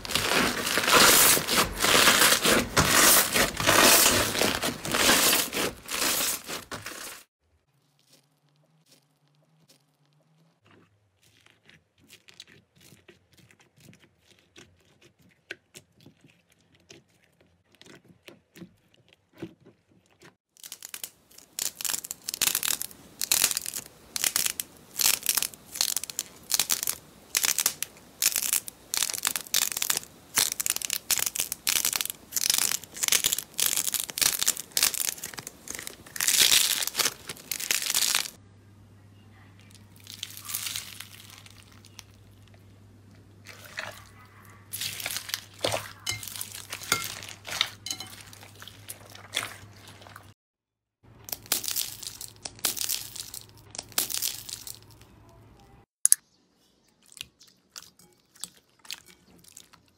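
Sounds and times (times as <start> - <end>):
slime crackling and popping: 0.0 - 10.5, 20.5 - 38.4, 39.9 - 42.6, 44.7 - 50.3, 51.1 - 55.0
faint low hum: 38.4 - 45.2.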